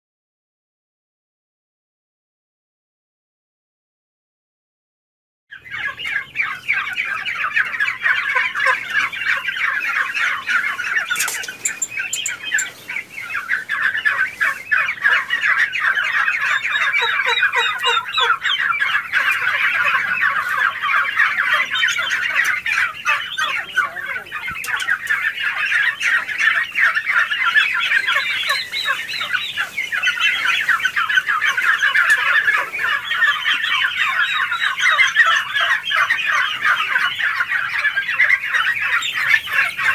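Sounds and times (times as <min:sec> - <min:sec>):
turkey poults chirping: 0:05.5 - 0:39.9.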